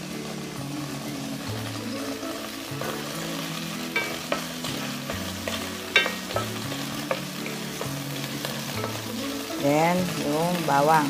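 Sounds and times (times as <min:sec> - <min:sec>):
onion sizzling in hot oil: 0:00.0 - 0:11.0
spatula stirring in wok: 0:01.9 - 0:10.2.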